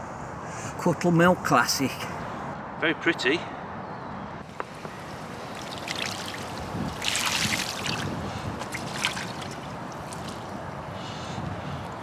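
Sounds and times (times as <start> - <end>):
water poured from bucket: 5.5 - 10.4
wet slaps and drips: 5.5 - 10.5.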